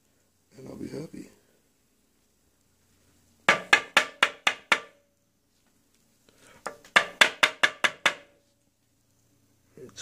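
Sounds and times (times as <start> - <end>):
hard object tapping on tabletop: 3.5 - 5.0, 6.7 - 8.3.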